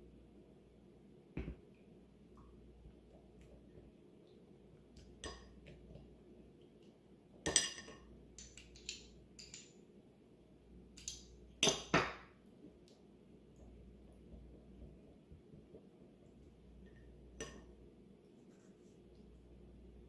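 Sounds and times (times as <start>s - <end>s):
utensil clinking on ceramic bowls: 7.5s - 9.8s.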